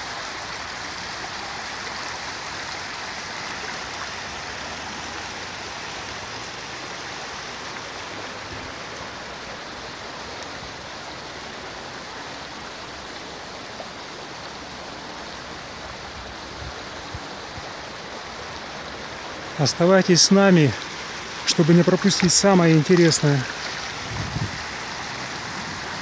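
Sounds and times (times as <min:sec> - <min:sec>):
river rushing over stones: 0:00.0 - 0:26.0.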